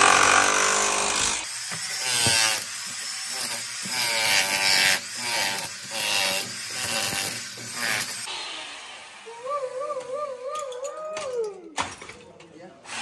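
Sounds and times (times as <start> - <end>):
demolition hammer chipping tiles: 0.0 - 8.3.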